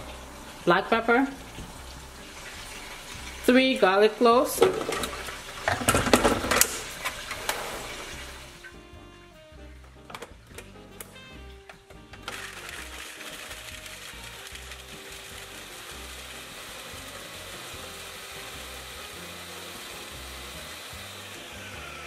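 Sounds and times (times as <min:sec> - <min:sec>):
blender motor running: 0:12.3 - 0:22.0.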